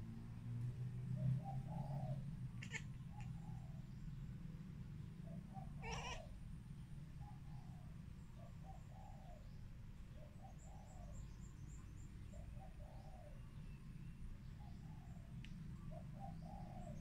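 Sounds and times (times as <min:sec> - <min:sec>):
dove cooing: 0:01.2 - 0:03.8, 0:05.3 - 0:06.4, 0:15.9 - 0:17.0
small bird chirping: 0:02.6 - 0:03.6.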